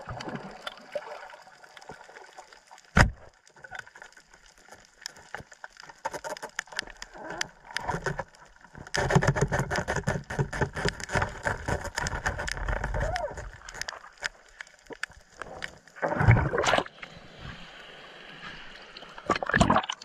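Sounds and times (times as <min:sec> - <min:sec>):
underwater crackle of clicks: 0:00.1 - 0:01.0, 0:01.6 - 0:16.0.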